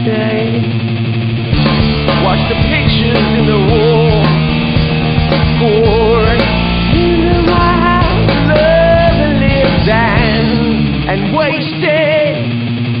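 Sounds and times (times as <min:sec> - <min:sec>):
wavering lead melody: 0:01.4 - 0:12.9
rock band playing: 0:01.5 - 0:11.8.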